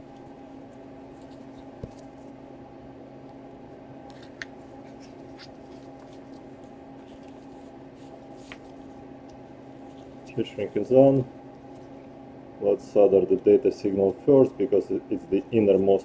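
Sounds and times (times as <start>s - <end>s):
steady low hum: 0.0s - 16.0s
gloved hands handling cord: 0.1s - 2.4s, 4.0s - 10.8s.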